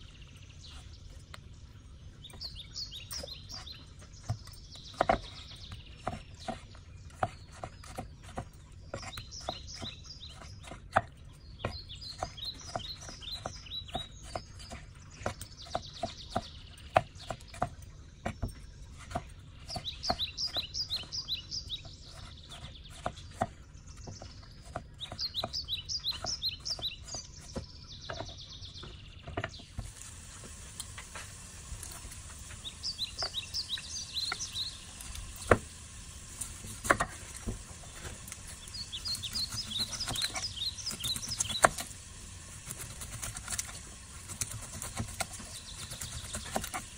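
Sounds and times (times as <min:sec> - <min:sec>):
small birds chirping: 0:00.0 - 0:46.9
knife chopping on wooden board: 0:04.2 - 0:21.1, 0:21.8 - 0:29.9, 0:35.4 - 0:35.7, 0:36.6 - 0:37.6, 0:39.1 - 0:41.9, 0:42.6 - 0:46.9.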